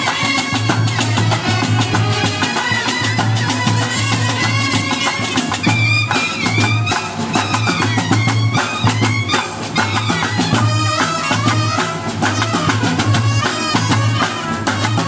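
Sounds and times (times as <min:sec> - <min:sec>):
cymbals clashing: 0:00.0 - 0:15.0
snare drums: 0:00.0 - 0:15.0
trumpets playing: 0:00.0 - 0:15.0.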